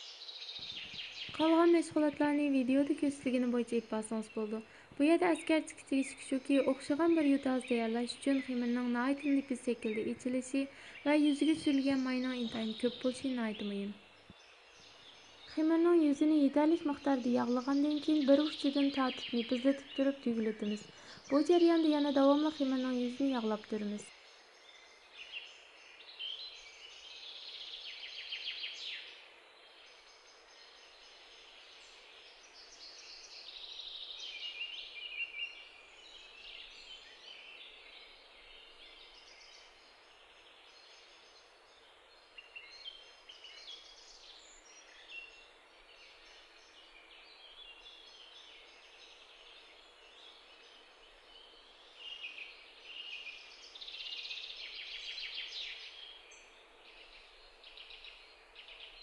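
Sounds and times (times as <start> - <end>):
steady hiss: 0.0 - 16.1
small birds chirping: 0.0 - 59.0.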